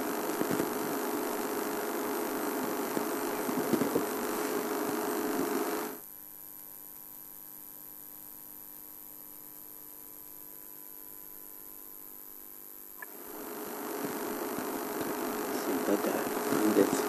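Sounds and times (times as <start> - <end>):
loud steady noise: 0.0 - 6.0, 13.0 - 17.0
electrical hum and hiss: 0.0 - 17.0.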